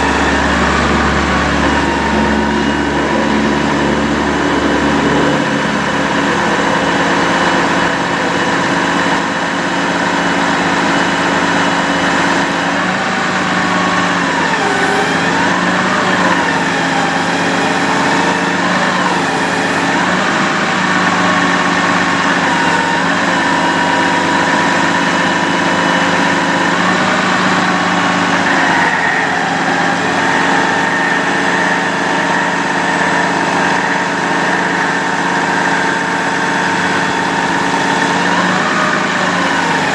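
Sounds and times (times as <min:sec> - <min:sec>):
diesel engine running: 0:00.0 - 0:39.9
hydraulic pump whining: 0:00.0 - 0:39.9.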